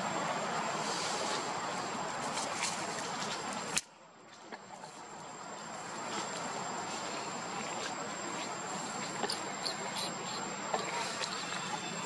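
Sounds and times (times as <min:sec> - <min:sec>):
outdoor background hiss: 0:00.0 - 0:12.0
faint high whine: 0:04.8 - 0:12.0.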